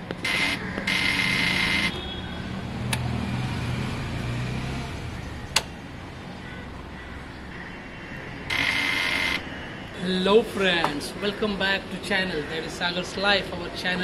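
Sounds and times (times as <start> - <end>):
motorcycle electrical buzzing: 0.1 - 5.9, 8.5 - 9.4.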